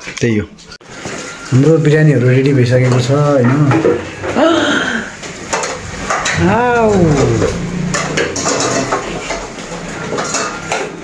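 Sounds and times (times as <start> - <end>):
metal utensils clinking on dishes: 0.9 - 4.4, 5.0 - 11.0
person calling out: 6.3 - 7.9.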